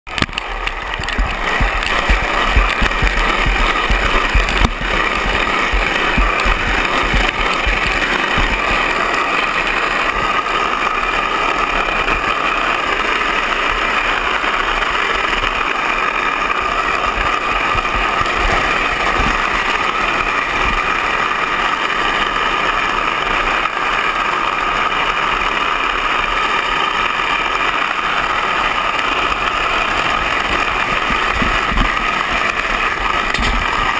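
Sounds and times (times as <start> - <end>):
cart wheels rolling on asphalt: 0.1 - 33.9
wind buffeting microphone: 0.2 - 9.0.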